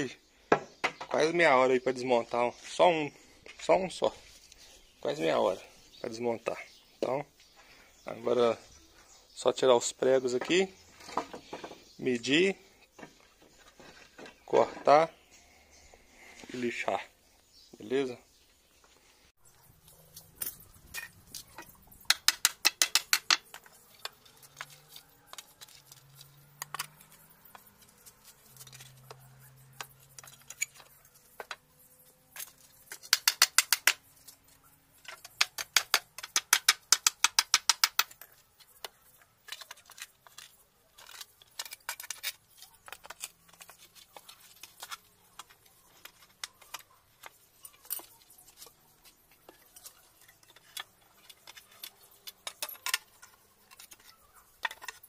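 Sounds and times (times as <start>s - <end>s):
metal clicks of nails and tools: 20.1s - 55.0s
hammer tapping on nails: 22.0s - 24.2s, 33.0s - 34.0s, 35.1s - 38.2s.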